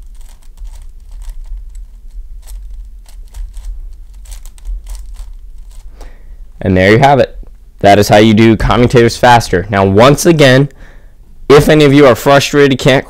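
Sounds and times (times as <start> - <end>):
puzzle cube clicking: 0.0 - 6.1
steady low hum: 0.0 - 12.2.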